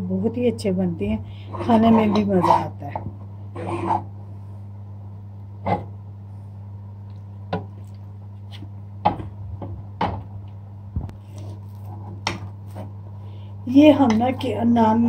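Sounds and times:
steady low hum: 0.0 - 15.0
dough kneading knocks and thumps: 9.0 - 10.4.

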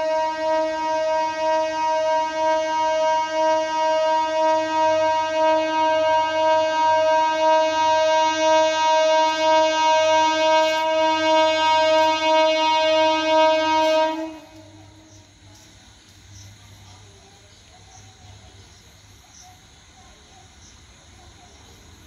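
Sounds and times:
train horn long blast: 0.0 - 15.3.

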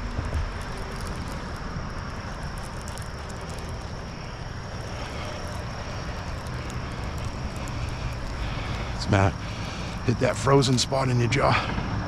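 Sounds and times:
low engine drone: 0.0 - 12.0.

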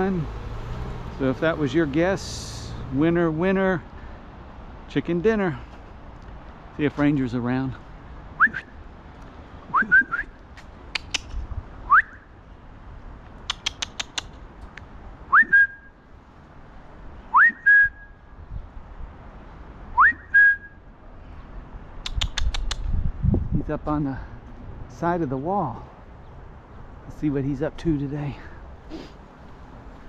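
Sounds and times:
person whistling: 8.4 - 8.7, 9.7 - 10.4, 11.9 - 12.2, 15.3 - 15.9, 17.3 - 18.2, 20.0 - 20.8.

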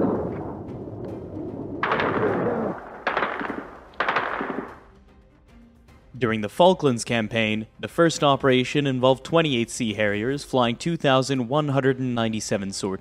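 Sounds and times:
anti-aircraft gunfire bursts: 1.8 - 4.9.

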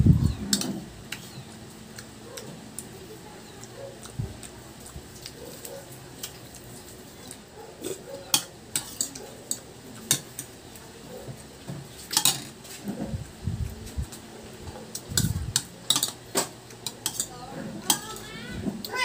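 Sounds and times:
cutlery clinking on a ceramic bowl: 8.3 - 10.5, 12.1 - 12.6, 15.6 - 16.2, 16.8 - 17.3.

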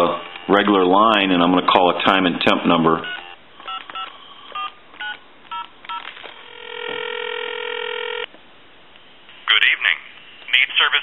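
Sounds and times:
touch-tone phone dialing beeps: 0.2 - 0.7, 3.0 - 8.3
steady ringback tone: 3.0 - 8.3.

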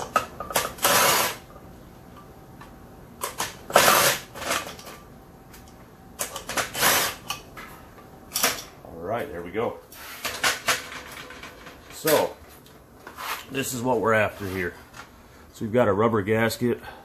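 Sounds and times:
impact tool bursts: 0.6 - 1.5, 3.4 - 4.7, 6.5 - 7.3.

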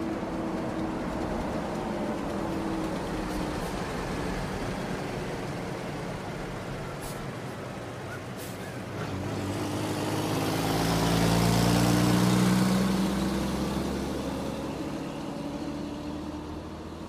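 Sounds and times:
truck driving past: 0.0 - 17.0.

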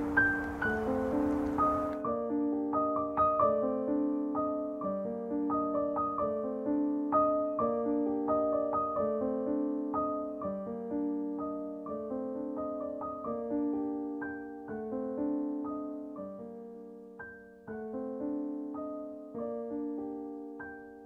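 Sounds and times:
solo piano music: 0.0 - 21.0.

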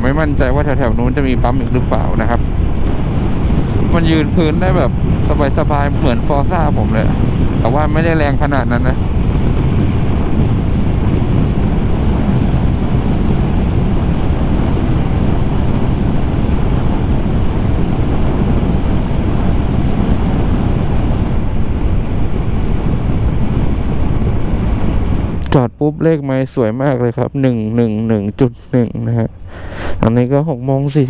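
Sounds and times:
scooter engine and road noise: 0.0 - 26.5
wind rushing over microphone: 0.0 - 31.0.

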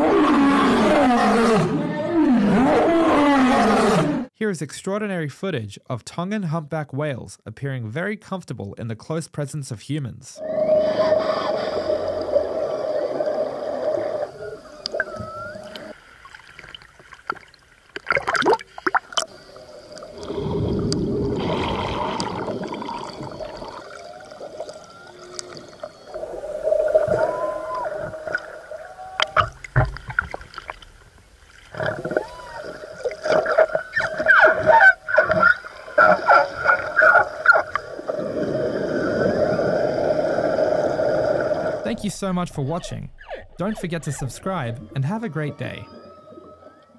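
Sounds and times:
humpback whales calling: 10.4 - 16.2, 19.3 - 29.8, 31.7 - 42.0, 42.6 - 46.9
bubbling water: 10.4 - 42.0.

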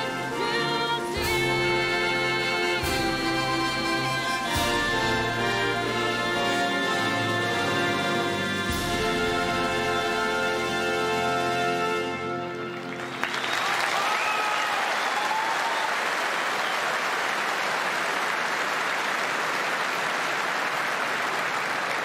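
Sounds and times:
crowd applauding: 12.4 - 22.0
whistles and cheers: 13.0 - 17.6.

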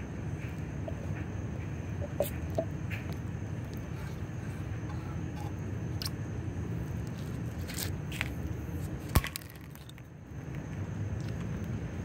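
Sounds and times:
outdoor background rumble: 0.0 - 12.0.

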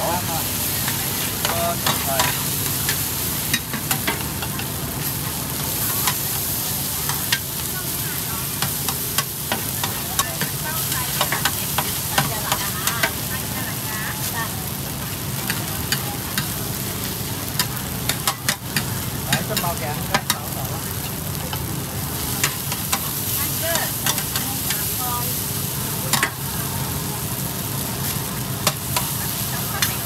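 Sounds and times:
food sizzling in a wok: 0.0 - 30.0.

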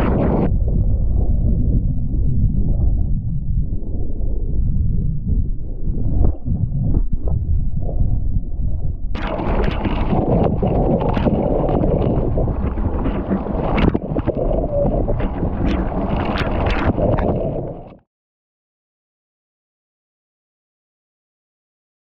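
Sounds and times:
wind rumbling on microphone: 0.0 - 18.0
water spray and splashes: 9.2 - 18.0.

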